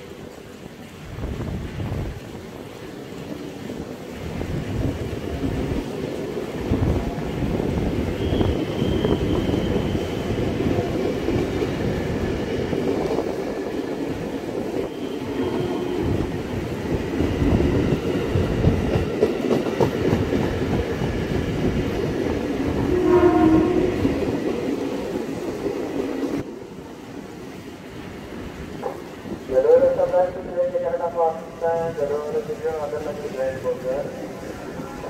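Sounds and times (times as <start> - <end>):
electric train rolling past: 0.0 - 35.0
wheels clacking on rails: 0.2 - 26.5, 28.5 - 29.5
train horn: 8.2 - 10.3, 14.8 - 16.3, 22.8 - 24.1.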